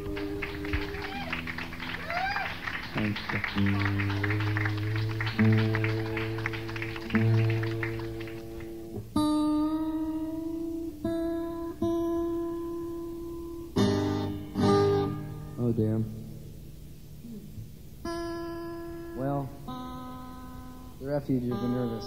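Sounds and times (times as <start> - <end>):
acoustic guitar: 0.0 - 22.0.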